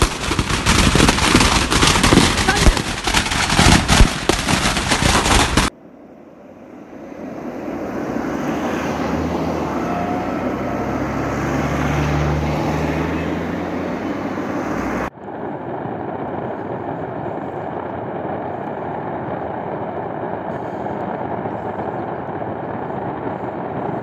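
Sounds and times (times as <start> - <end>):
fireworks crackling pops: 0.0 - 5.7, 15.2 - 24.0
droning hum: 0.0 - 10.4, 15.1 - 24.0
low rumble: 15.1 - 24.0.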